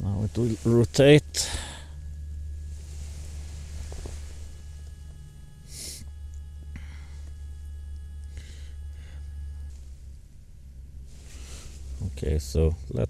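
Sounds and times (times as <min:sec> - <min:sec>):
low hum: 0:00.0 - 0:13.0
motor whine: 0:00.0 - 0:13.0
breaths near microphone: 0:01.4 - 0:02.1, 0:06.7 - 0:07.4, 0:08.3 - 0:09.6.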